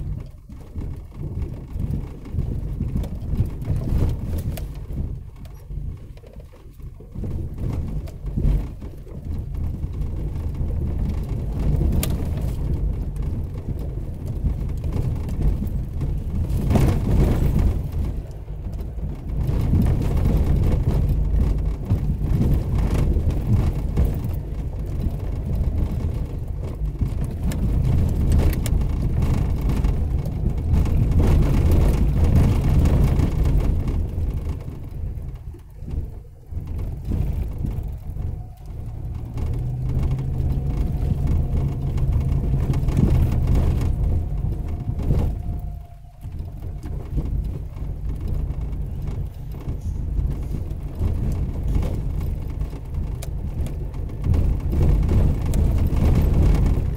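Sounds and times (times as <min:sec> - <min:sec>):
rattles and small knocks: 0:00.0 - 0:56.9
vehicle engine and drivetrain rumble: 0:00.0 - 0:56.9.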